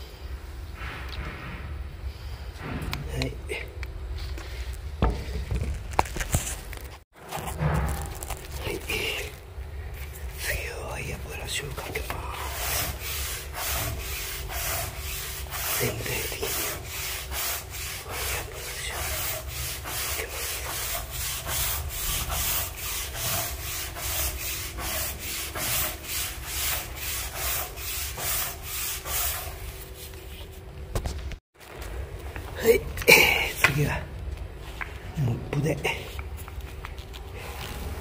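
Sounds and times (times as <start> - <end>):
brush scrubbing wet wooden deck: 12.4 - 30.0.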